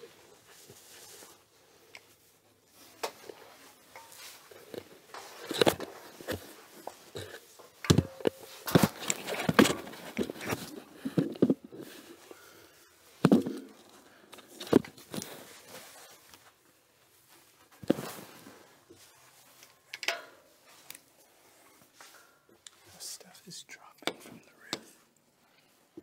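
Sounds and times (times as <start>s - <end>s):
thumps and clicks: 5.4s - 11.7s.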